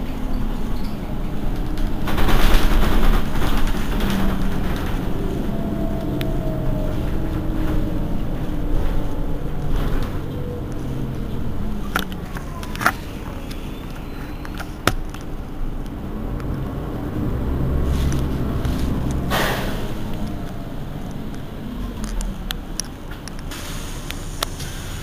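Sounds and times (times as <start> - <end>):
bus engine idling: 0.0 - 25.0
short hiss: 23.5 - 25.0.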